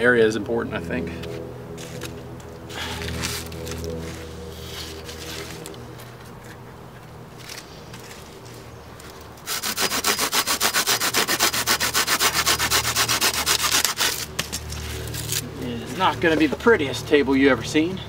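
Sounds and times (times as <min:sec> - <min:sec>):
handsaw cutting a dry stick: 0:09.4 - 0:16.6.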